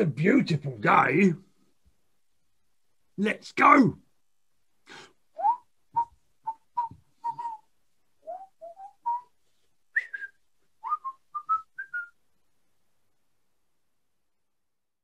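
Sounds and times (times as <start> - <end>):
man whistling a tune: 5.4 - 12.2.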